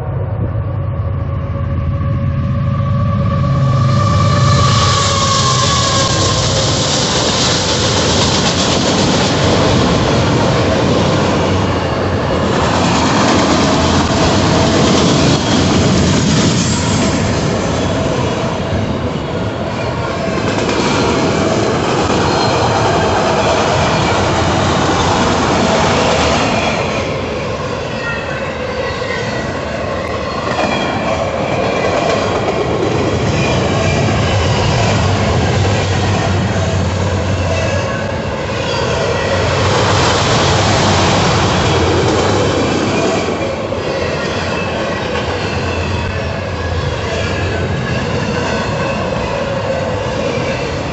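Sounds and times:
freight train wheels rumbling on rail: 0.0 - 50.9
wheel squeal: 3.5 - 7.7.

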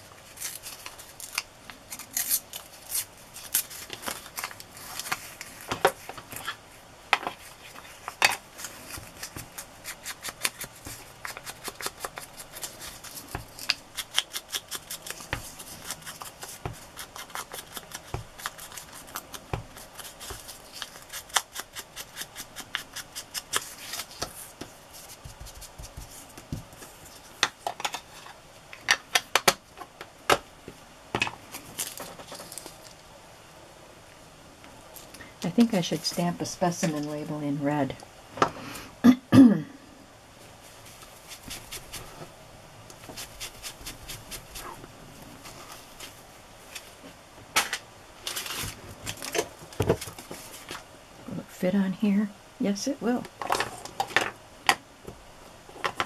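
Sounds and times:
paper tearing: 8.6 - 24.2.

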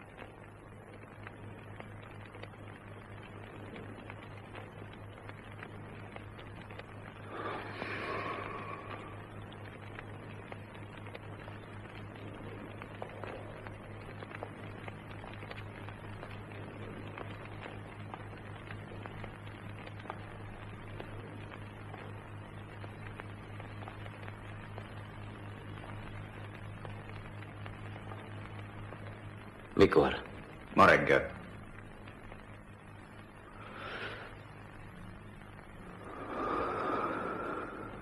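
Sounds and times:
faint hiss: 0.0 - 38.0
light crackles: 0.0 - 38.0
low mains hum: 0.0 - 38.0.

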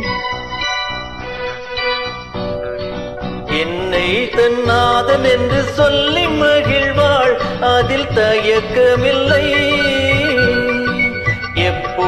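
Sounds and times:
instrumental melody over a beat: 0.0 - 12.0
person singing: 2.8 - 12.0.

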